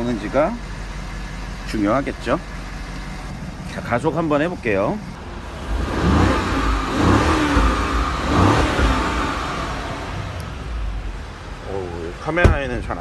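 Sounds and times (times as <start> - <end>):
car engine revving: 3.2 - 13.0.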